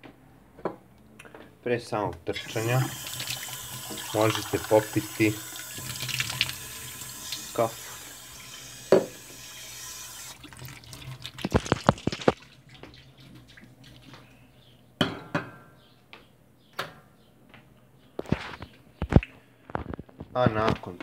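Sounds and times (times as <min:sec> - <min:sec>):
tap running into steel sink: 0:08.8 - 0:09.3.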